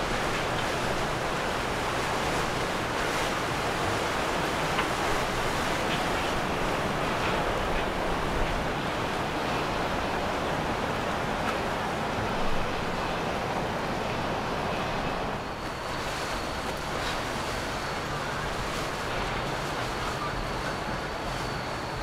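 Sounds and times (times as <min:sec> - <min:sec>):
water rushing from boat wake: 0:00.0 - 0:22.0.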